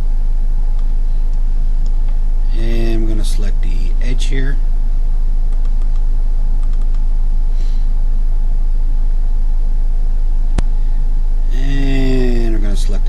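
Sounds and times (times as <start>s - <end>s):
steady low hum: 0.0s - 13.0s
computer mouse clicks: 5.5s - 6.0s, 6.6s - 7.0s.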